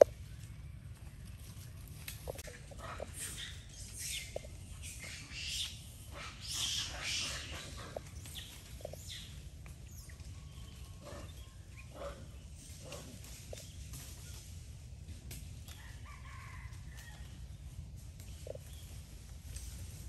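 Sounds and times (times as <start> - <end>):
low steady rumble: 0.0 - 16.0
high-pitched animal calls and chirps: 2.8 - 12.0.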